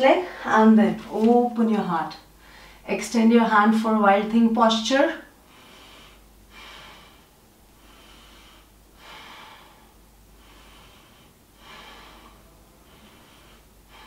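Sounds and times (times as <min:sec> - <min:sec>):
person breathing slowly: 0:02.4 - 0:02.8, 0:05.4 - 0:14.0.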